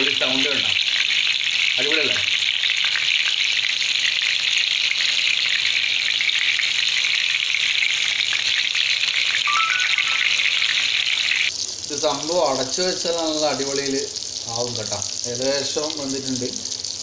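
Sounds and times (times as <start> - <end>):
fish sizzling in hot oil: 0.0 - 17.0.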